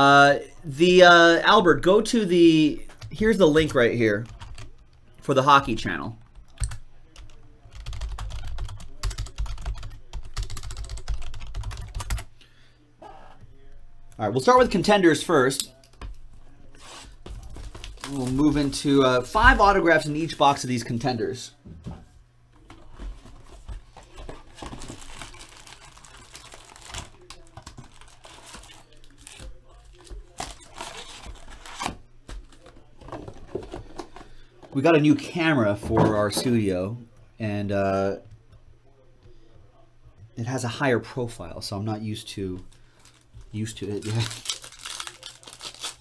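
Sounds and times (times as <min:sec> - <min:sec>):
fast typing on keyboard: 0:03.0 - 0:04.8, 0:06.2 - 0:12.3
packaging crinkling and rustling: 0:16.8 - 0:18.8, 0:22.6 - 0:34.3, 0:42.6 - 0:46.0.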